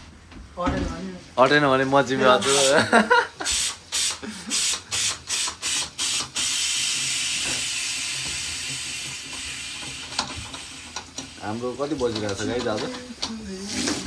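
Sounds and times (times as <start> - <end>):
tap running: 5.4 - 14.0.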